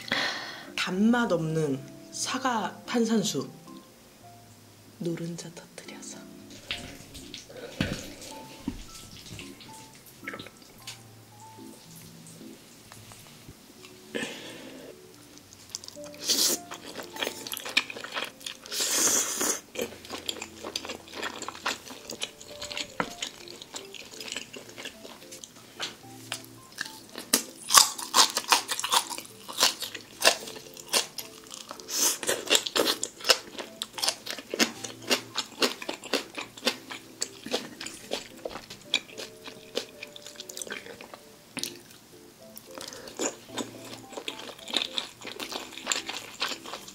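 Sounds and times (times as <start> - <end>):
crunchy chewing: 14.9 - 42.0, 42.6 - 46.9.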